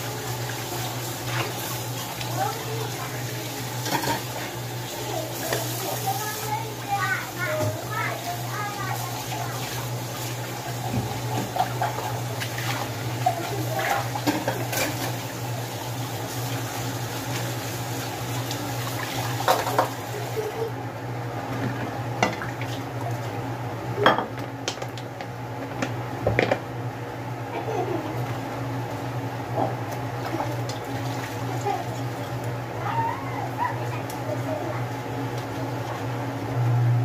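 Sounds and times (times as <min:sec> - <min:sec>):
tap water running: 0:00.0 - 0:20.8, 0:21.4 - 0:23.4, 0:27.5 - 0:36.6.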